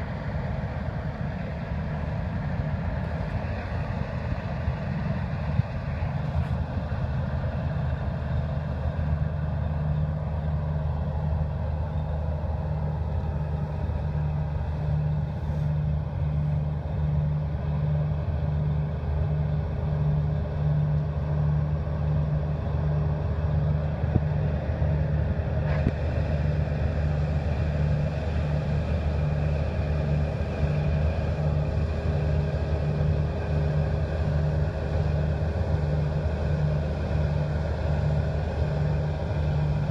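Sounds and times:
combine harvester engine droning: 0.0 - 39.9.

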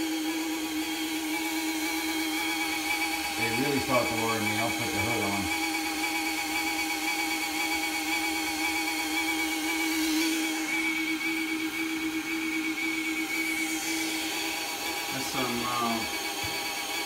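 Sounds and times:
vacuum motor whining: 0.0 - 17.0.

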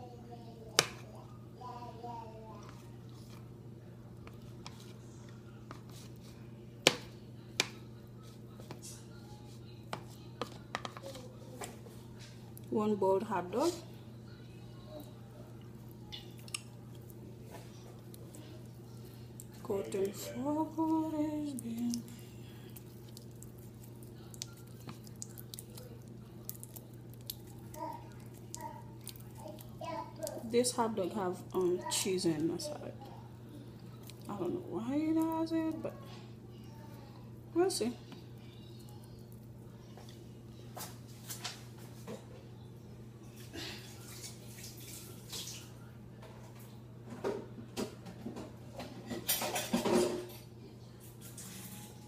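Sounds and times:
steady low hum: 0.0 - 44.5
dishes and utensils clinking: 48.1 - 50.5.

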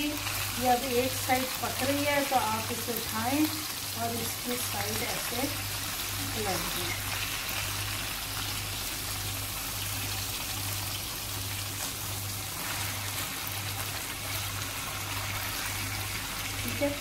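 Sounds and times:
chicken sizzling in oil: 0.0 - 17.0.

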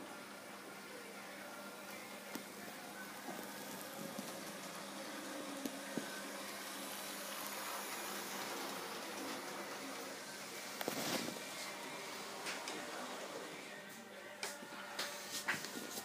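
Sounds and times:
model train motor whir: 3.4 - 10.9.

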